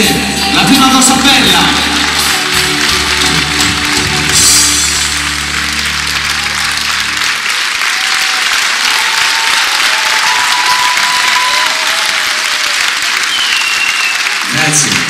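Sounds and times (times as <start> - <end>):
backing music: 0.0 - 8.9
audience applauding: 0.7 - 15.0.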